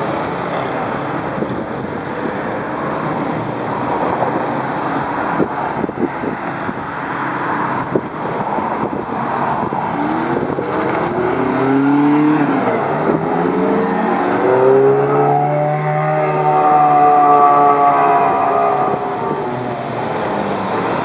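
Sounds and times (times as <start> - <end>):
sports cars accelerating: 2.2 - 21.0.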